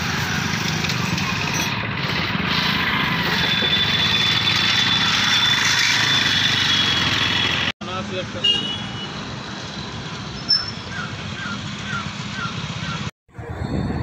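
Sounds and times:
motorbike passing: 0.0 - 7.7
steady traffic hum: 0.0 - 14.0.

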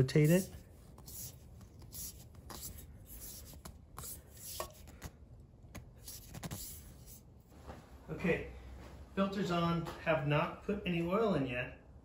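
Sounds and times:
oil filter scraping on threads: 0.0 - 5.1.

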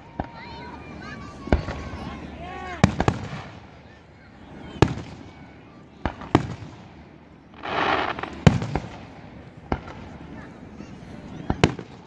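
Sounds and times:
firework booms with echoes: 2.8 - 4.0, 4.7 - 10.2, 11.5 - 12.0.

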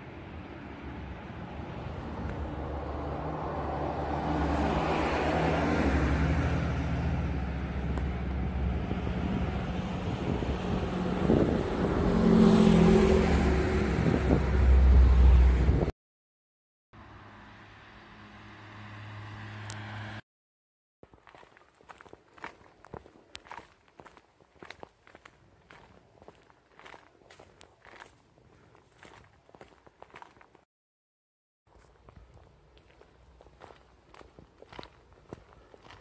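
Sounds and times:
highway traffic rumble: 0.0 - 15.9, 17.0 - 20.2, 21.1 - 30.6, 31.7 - 36.0
vehicle engine hum approaching: 0.0 - 15.9, 17.0 - 20.2.

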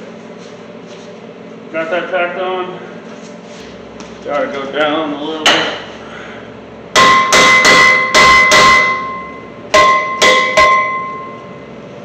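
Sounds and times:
hammer striking steel: 5.4 - 5.8, 6.9 - 11.4.

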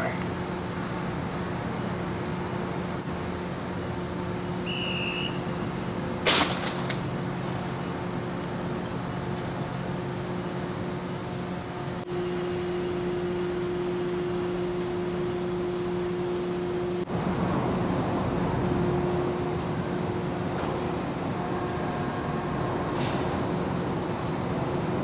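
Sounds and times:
machinery humming: 0.0 - 25.0
short high whistle: 4.6 - 5.4
sharp loud gunshot: 6.2 - 7.0.

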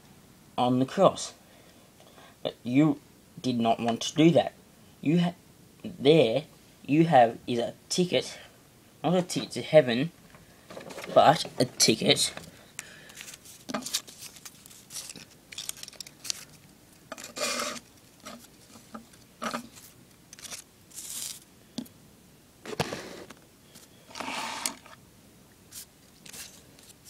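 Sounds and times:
paper rustling and scraping: 13.1 - 16.6, 17.2 - 21.4, 25.7 - 27.0.

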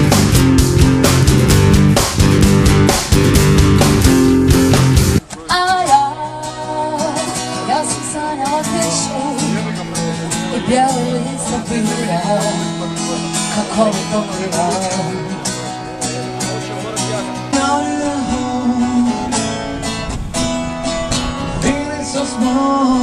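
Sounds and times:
strummed acoustic guitar: 0.0 - 23.0
person singing: 5.3 - 9.8, 10.4 - 12.8, 17.4 - 19.8, 21.5 - 23.0.

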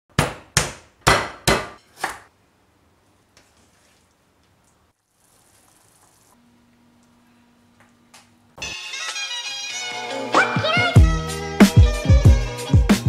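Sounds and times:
stone pestle pounding on wood: 0.2 - 2.2.

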